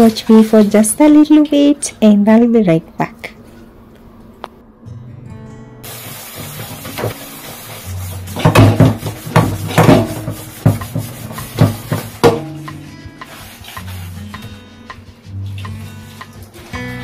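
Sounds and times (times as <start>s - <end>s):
background music: 4.8s - 17.0s
metal pots clanking in a sink: 8.4s - 12.9s.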